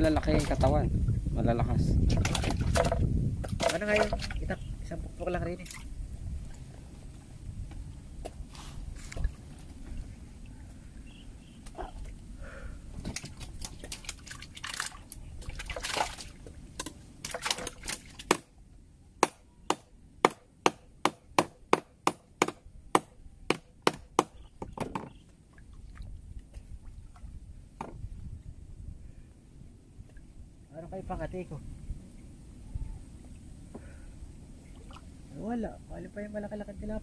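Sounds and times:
water splashing and sloshing: 0.0 - 19.4, 23.0 - 28.6, 33.1 - 35.3
sharp knocks: 19.2 - 25.2.

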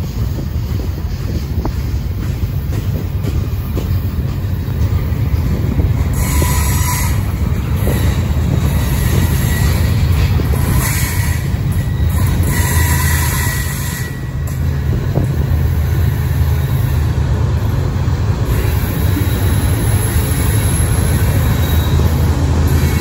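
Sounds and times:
train wheels rumbling on track: 0.0 - 23.0
wheel squeal: 6.1 - 14.6, 18.5 - 23.0.

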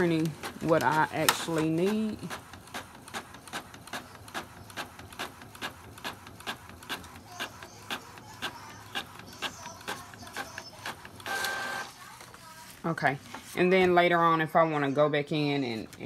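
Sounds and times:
printer mechanical hum: 0.0 - 12.4
printer whir: 0.0 - 12.4.

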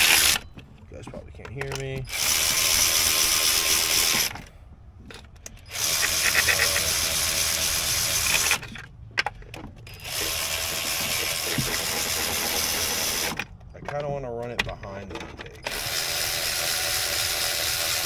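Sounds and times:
power tool running in bursts: 0.0 - 0.4, 2.1 - 4.3, 5.7 - 8.6, 10.0 - 13.4, 15.7 - 18.0.

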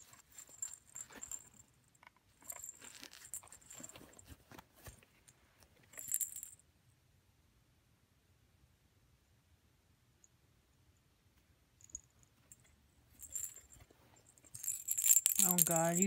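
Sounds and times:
foil toy crinkling and jingling: 13.2 - 16.0.

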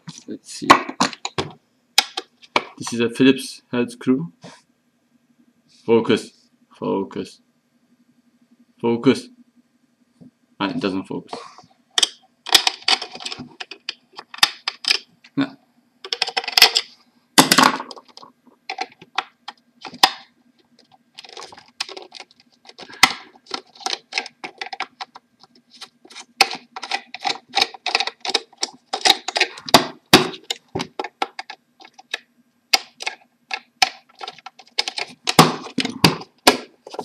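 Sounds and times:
faint steady hum: 0.0 - 37.0
plastic being handled: 20.8 - 32.2, 32.8 - 37.0.

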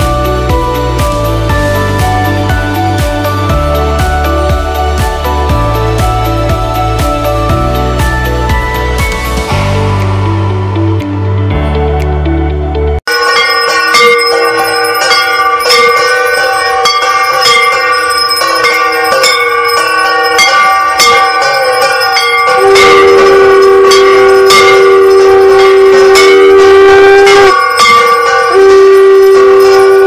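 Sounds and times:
hand bells ringing: 0.0 - 10.2, 13.1 - 30.0
long blown note: 22.5 - 30.0.

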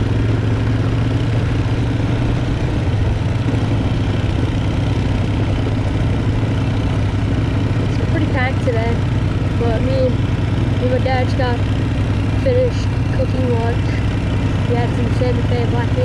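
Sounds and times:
quad engine running: 0.0 - 16.0
tires rolling over gravel: 0.0 - 16.0.

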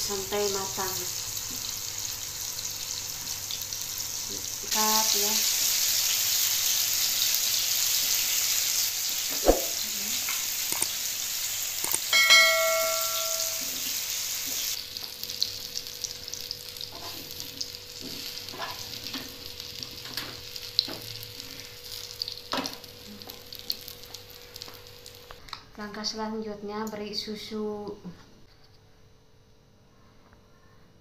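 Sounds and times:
food sizzling in a frying pan: 0.0 - 25.4
short ringing clink: 12.1 - 13.8.

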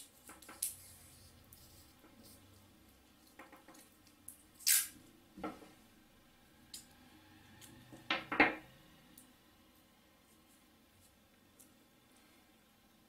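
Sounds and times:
scissors snipping tape: 4.6 - 4.9.

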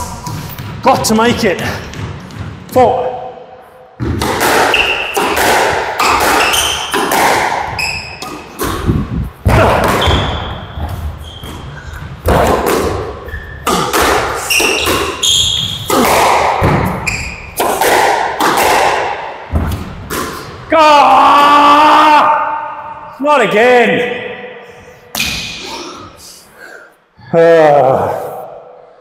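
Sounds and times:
squash ball hits: 4.0 - 20.5, 25.1 - 25.6
shoe squeaks on court: 4.7 - 5.2, 6.0 - 7.0, 7.7 - 8.5, 10.0 - 12.1, 13.2 - 13.7, 14.4 - 15.9, 17.0 - 17.6.

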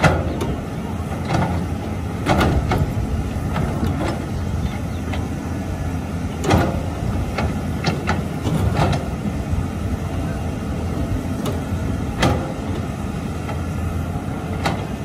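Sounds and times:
excavator diesel engines running: 0.0 - 15.0
excavator bucket knocks and clanks: 1.2 - 4.3.

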